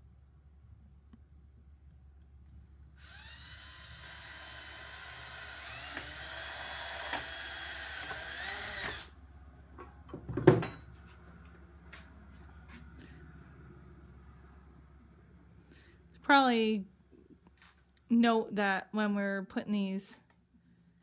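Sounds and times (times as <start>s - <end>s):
cordless drill boring plastic: 3.0s - 9.2s.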